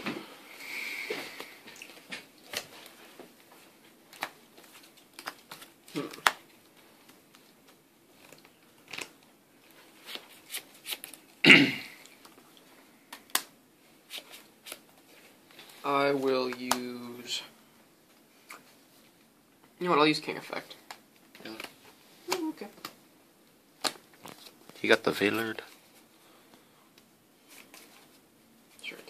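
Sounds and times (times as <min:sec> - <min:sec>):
person coughing: 0:11.4 - 0:12.0.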